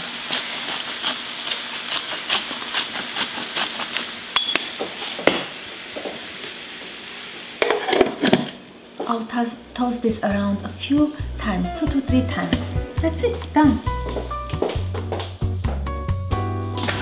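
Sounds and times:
greens sizzling in pan: 0:00.0 - 0:09.1.

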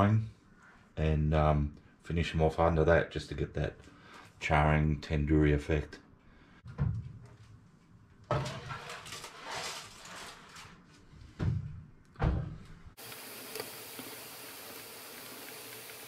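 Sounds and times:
steady hiss with buzzing hum: 0:13.0 - 0:16.0.

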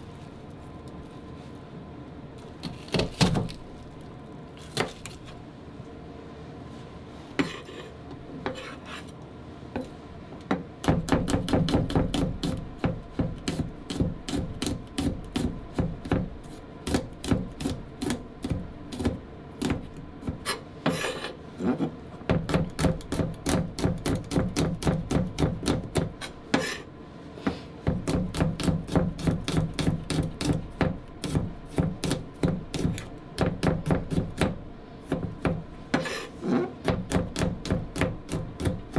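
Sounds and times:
knife chopping on wooden board: 0:02.6 - 0:03.6, 0:10.5 - 0:21.3, 0:22.3 - 0:26.8, 0:27.4 - 0:38.9.

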